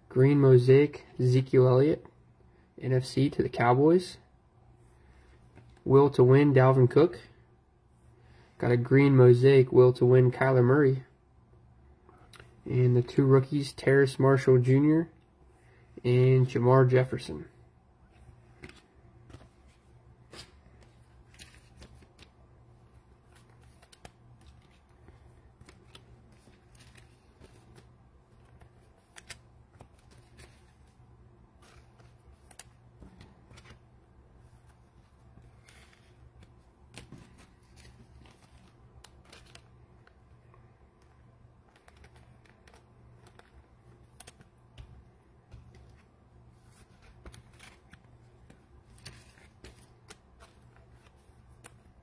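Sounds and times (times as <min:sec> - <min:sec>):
low steady hum: 0:00.0 - 0:52.0
card packs clicking and rustling: 0:35.5 - 0:40.2, 0:41.6 - 0:44.5, 0:46.8 - 0:51.9.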